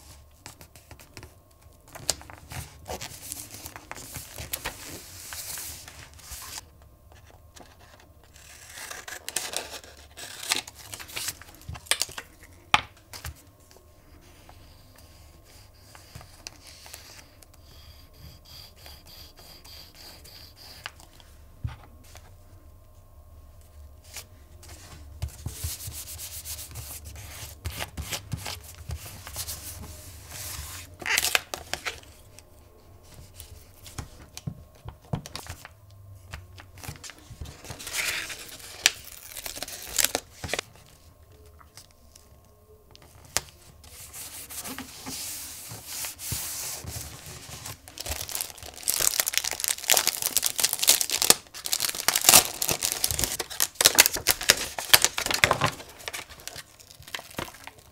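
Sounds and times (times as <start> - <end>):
plastic sheet crinkling: 36.9 - 40.6, 43.9 - 57.9.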